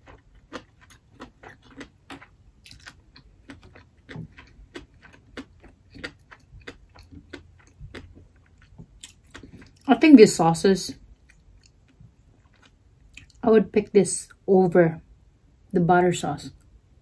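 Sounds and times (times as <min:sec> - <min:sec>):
chewing with lip smacks: 0:00.0 - 0:09.9, 0:11.0 - 0:13.4.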